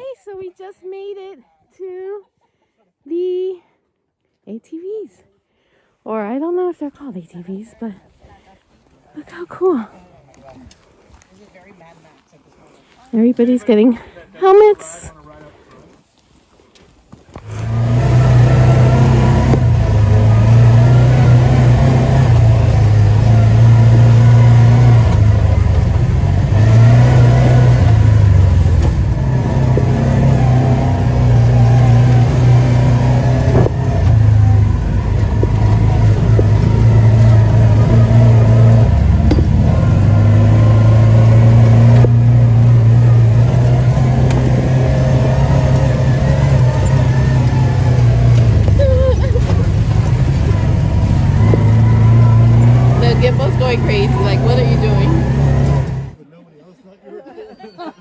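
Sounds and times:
off-road vehicle engine running: 17.4s - 56.2s.

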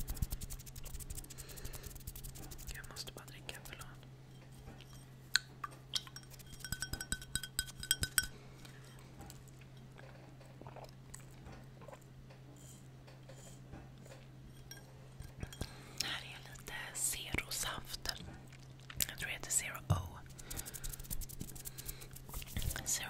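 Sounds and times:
steady low hum: 0.0s - 23.0s
taps on drinking glass ringing: 6.0s - 8.3s.

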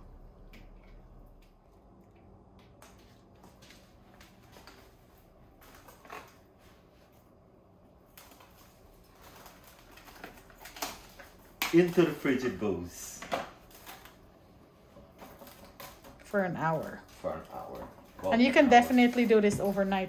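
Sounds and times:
plastic cling wrap crinkling: 8.0s - 14.5s, 15.1s - 20.0s.

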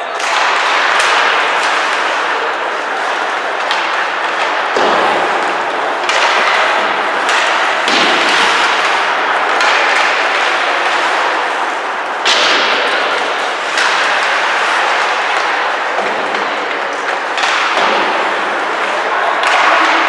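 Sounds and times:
knocks against rink boards: 0.0s - 20.0s.

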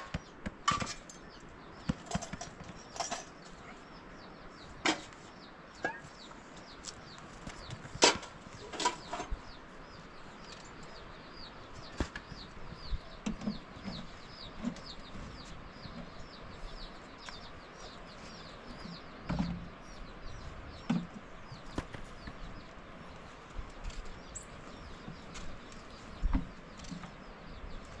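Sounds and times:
small bird chirping: 1.1s - 28.0s.

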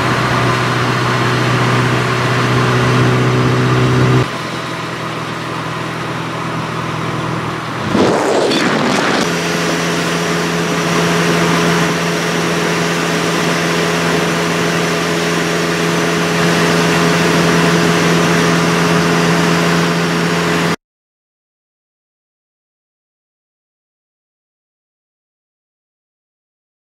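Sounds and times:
motorcycle engine cruising: 0.0s - 20.7s
wind rush: 7.6s - 11.0s.

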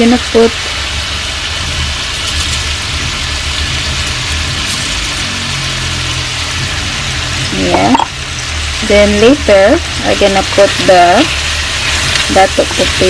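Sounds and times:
meat sizzling in hot oil: 0.0s - 13.0s
low steady hum: 2.3s - 13.0s.

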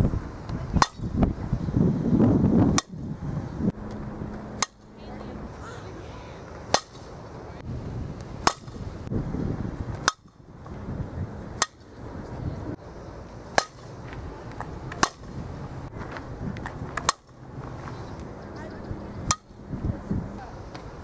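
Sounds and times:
bat cracking softballs: 0.7s - 1.1s, 3.9s - 4.9s, 6.4s - 7.4s, 8.2s - 8.9s, 9.9s - 10.8s, 11.5s - 12.0s, 13.5s - 18.3s, 19.2s - 19.5s.

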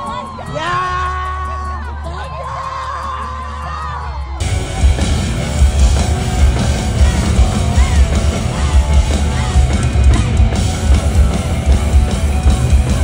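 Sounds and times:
live rock music: 0.0s - 13.0s
steady drum beat: 3.0s - 13.0s
heavy electric guitar: 4.4s - 13.0s.

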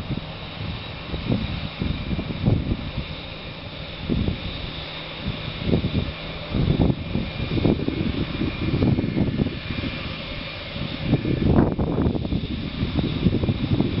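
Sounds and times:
jet engines whining: 0.0s - 14.0s
wind rumble on microphone: 0.0s - 14.0s.

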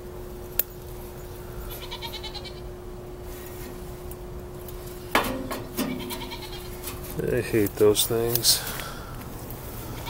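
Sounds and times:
faint steady hum: 0.0s - 10.0s
bleat-like animal call: 1.7s - 2.7s, 5.8s - 6.8s.

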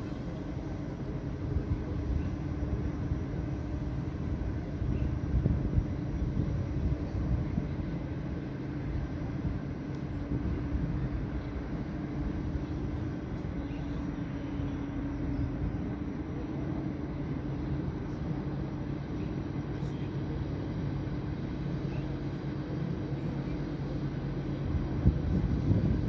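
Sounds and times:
faint hum: 0.0s - 26.0s
low rumble: 24.1s - 26.0s.

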